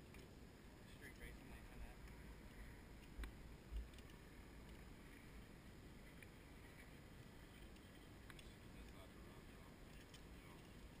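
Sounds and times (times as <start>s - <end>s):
faint low outdoor rumble: 0.0s - 11.0s
faint ticks: 2.0s - 5.4s, 6.0s - 9.1s, 9.8s - 11.0s.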